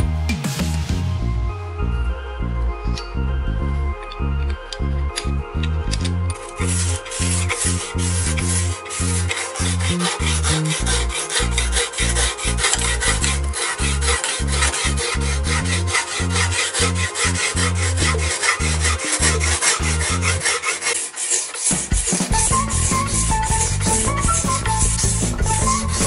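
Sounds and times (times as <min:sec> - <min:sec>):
sharpening block rasping on knife: 0:06.5 - 0:26.0.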